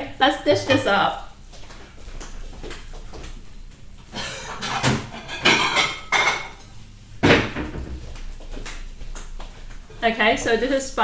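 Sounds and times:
spatula scraping and knocking in a wok: 0.5s - 1.2s.

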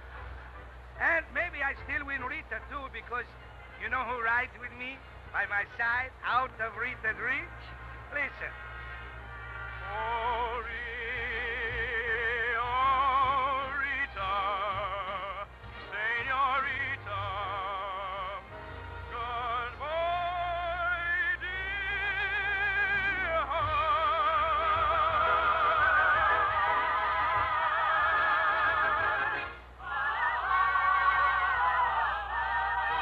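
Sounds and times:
woman singing opera with vibrato: 22.2s - 33.0s.

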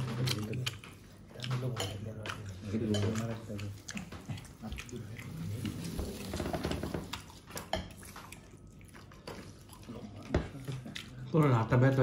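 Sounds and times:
dishes and spoons clinking: 1.5s - 3.6s, 7.5s - 8.1s.

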